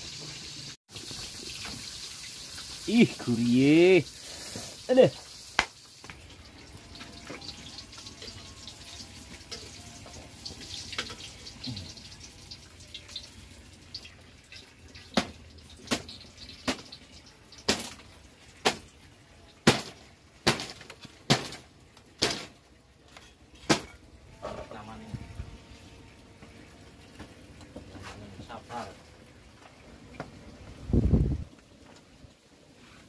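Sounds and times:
fish sizzling in oil: 0:00.0 - 0:25.0.

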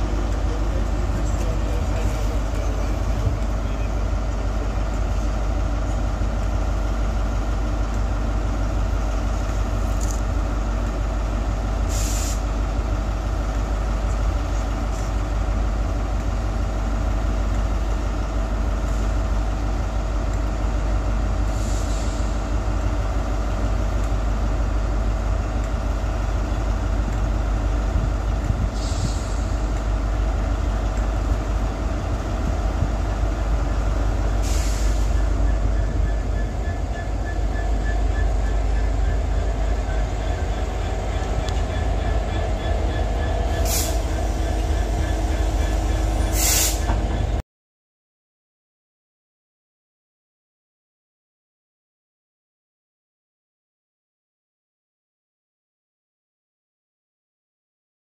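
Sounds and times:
diesel engine idling: 0:00.0 - 0:47.4
air hisses: 0:46.3 - 0:46.9.

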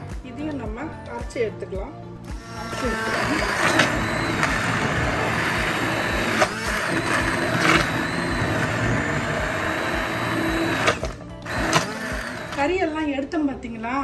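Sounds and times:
hand blender running: 0:02.3 - 0:12.9.

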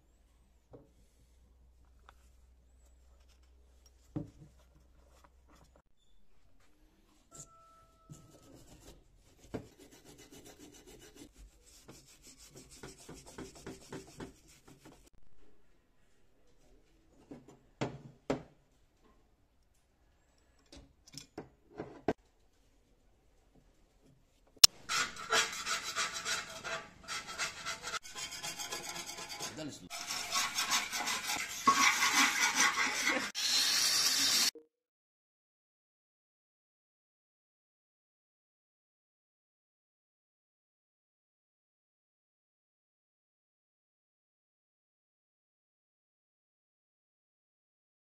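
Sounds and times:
wire brush scraping metal: 0:24.6 - 0:34.5.

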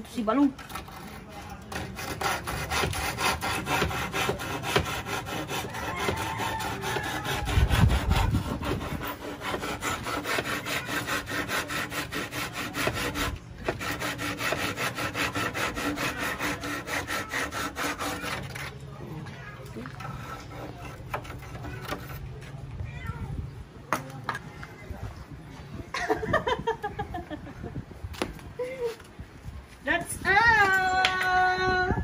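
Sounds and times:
hand saw cutting wood: 0:00.5 - 0:18.8, 0:19.8 - 0:22.2.

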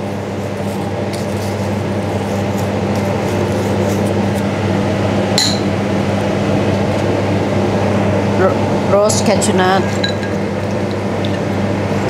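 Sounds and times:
kitchen ventilation hum: 0:00.0 - 0:12.0
ceramic crockery clink: 0:05.4 - 0:05.7.

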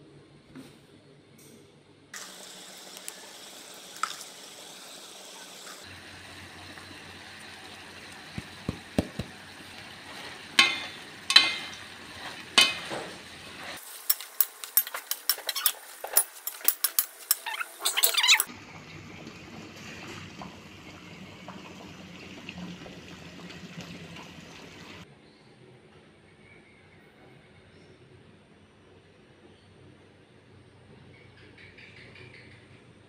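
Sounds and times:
food sizzling in a pan: 0:02.2 - 0:18.8
spatula clanking against pan: 0:10.2 - 0:13.2, 0:14.0 - 0:18.5.

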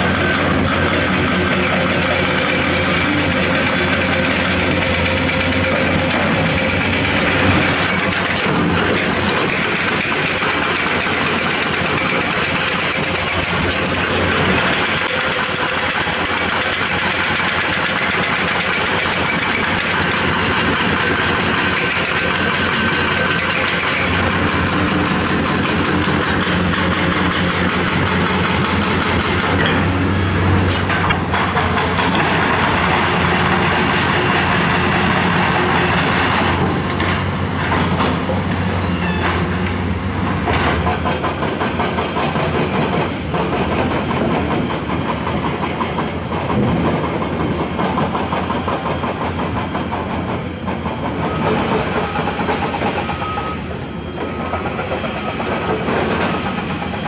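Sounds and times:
excavator diesel engines running: 0:00.0 - 0:57.0.

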